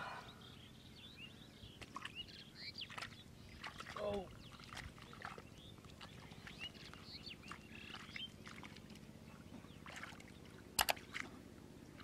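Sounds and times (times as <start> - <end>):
water sloshing and splashing: 1.7 - 12.0.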